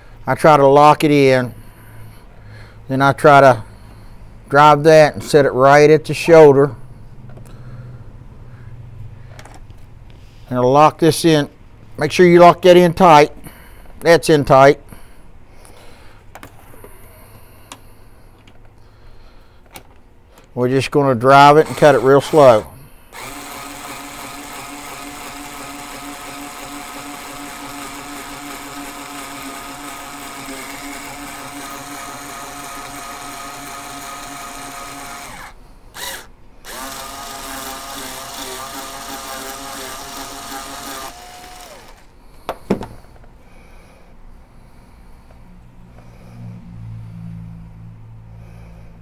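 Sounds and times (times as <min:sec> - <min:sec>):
cutter shaving brass case: 0:21.4 - 0:42.1
power drill whining: 0:21.4 - 0:42.2.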